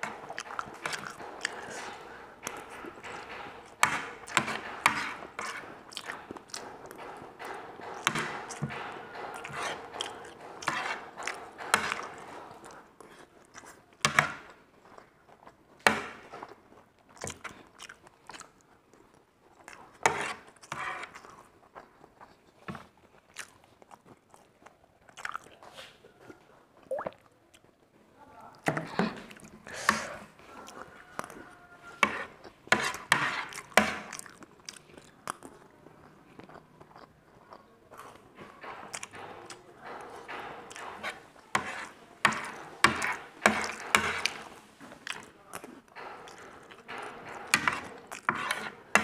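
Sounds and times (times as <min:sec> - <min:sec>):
chewing: 0:00.0 - 0:04.4, 0:05.5 - 0:27.8, 0:28.5 - 0:48.8.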